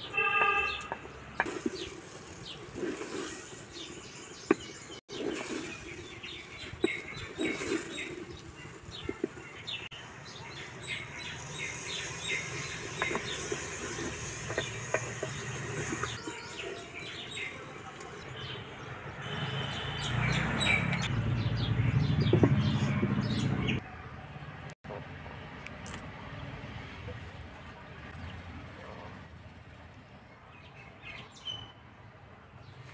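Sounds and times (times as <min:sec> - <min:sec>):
small birds chirping: 0:00.4 - 0:18.8
water poured into hot pot hissing: 0:11.4 - 0:18.2.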